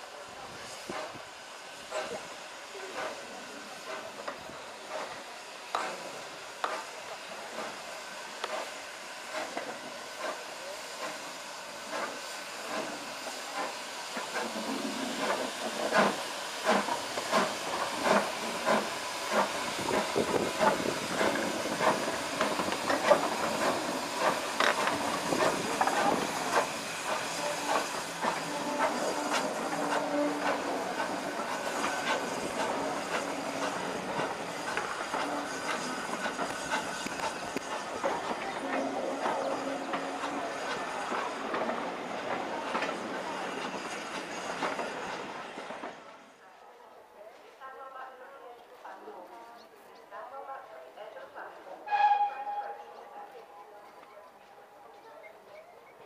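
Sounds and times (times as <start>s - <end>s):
steam locomotive hissing: 0.0s - 46.4s, 51.8s - 55.7s.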